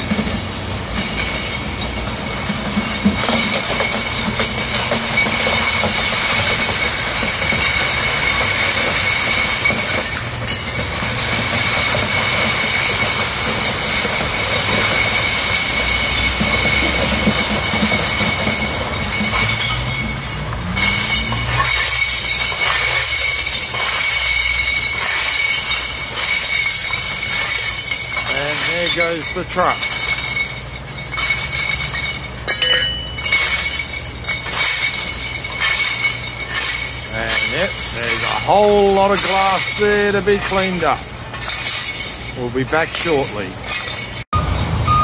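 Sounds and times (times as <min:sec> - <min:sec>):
tyres crushing glass bottles: 0:00.0 - 0:45.0
diesel engine running: 0:06.7 - 0:25.3, 0:44.3 - 0:45.0.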